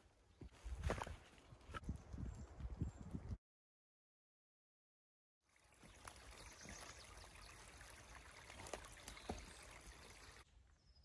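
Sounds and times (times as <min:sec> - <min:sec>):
forest background: 0:00.0 - 0:03.4, 0:05.4 - 0:11.0
stream trickling: 0:05.4 - 0:10.5.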